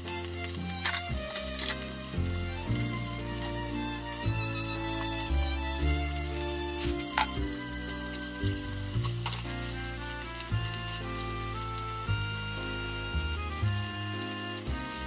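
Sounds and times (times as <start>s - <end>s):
background music: 0.0s - 15.0s
food sizzling in a frying pan: 0.0s - 15.0s
spatula tapping pan: 6.8s - 7.6s.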